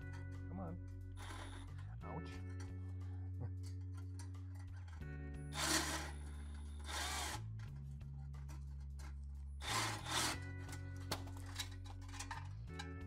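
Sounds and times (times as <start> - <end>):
background music: 0.0 - 13.0
harsh power tool bursts: 5.6 - 6.2, 6.8 - 7.4, 9.6 - 10.4.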